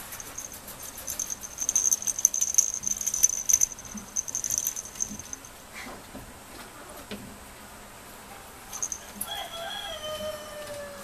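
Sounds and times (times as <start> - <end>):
toy rattle jingling: 0.0 - 5.6, 8.7 - 9.2.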